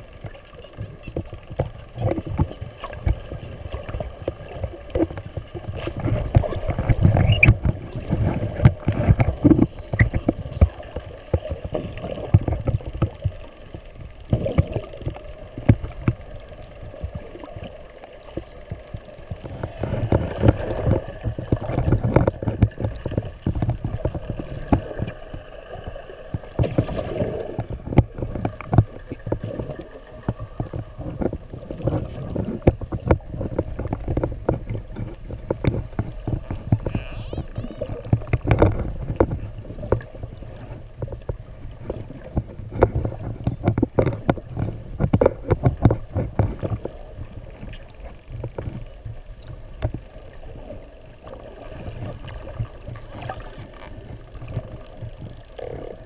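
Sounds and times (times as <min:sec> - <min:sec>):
faint steady hum: 0:00.0 - 0:56.0
underwater rumble of moving water: 0:00.0 - 0:56.0
dolphin whistles: 0:07.2 - 0:07.5.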